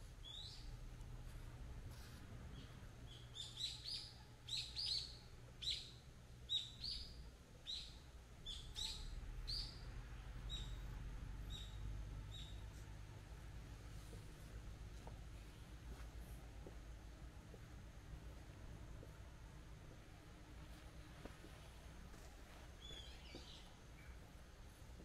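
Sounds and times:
small bird chirping: 0:00.2 - 0:00.7, 0:02.5 - 0:10.9, 0:11.5 - 0:12.8, 0:22.8 - 0:24.2.

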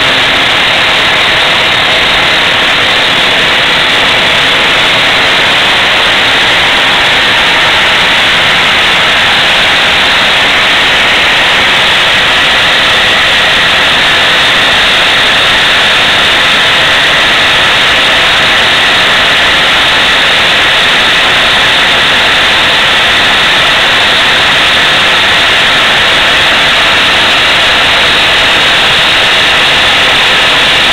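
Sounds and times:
toy steam engines hissing: 0:00.0 - 0:30.9.

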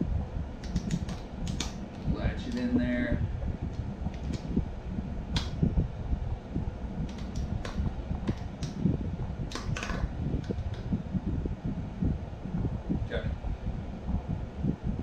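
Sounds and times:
strap rubbing and bumping: 0:07.1 - 0:11.0.

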